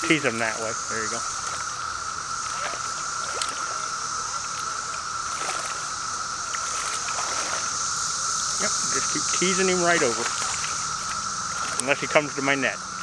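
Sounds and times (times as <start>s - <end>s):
cicadas droning buzz: 0.0s - 13.0s
fish splashing in water: 0.7s - 12.2s.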